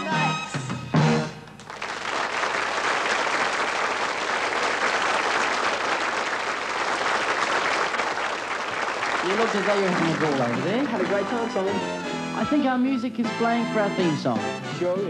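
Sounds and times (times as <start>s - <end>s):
audience applauding: 1.5s - 12.0s
song music: 9.3s - 15.0s.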